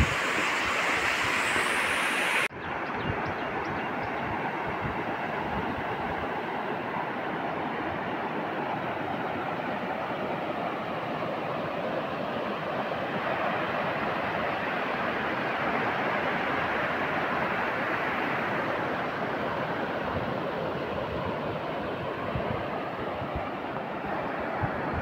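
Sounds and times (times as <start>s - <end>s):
river rushing over rapids: 0.0s - 2.5s.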